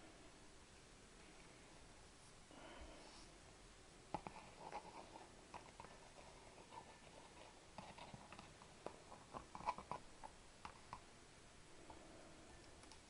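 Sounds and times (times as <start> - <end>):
light clicks and small taps: 12.6 - 13.0.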